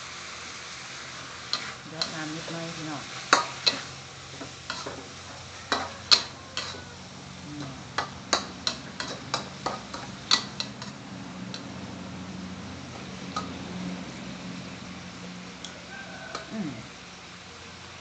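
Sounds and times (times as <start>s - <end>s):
food sizzling: 0.0s - 18.0s
metal spatula scraping a wok: 1.0s - 11.6s
spatula clinking: 3.3s - 6.9s, 7.6s - 11.8s.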